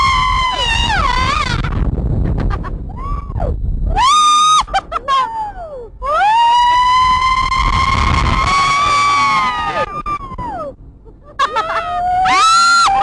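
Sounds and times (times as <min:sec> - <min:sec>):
passengers screaming: 0:00.0 - 0:01.9, 0:02.9 - 0:10.7, 0:11.4 - 0:13.0
wind and ride rumble: 0:00.0 - 0:13.0.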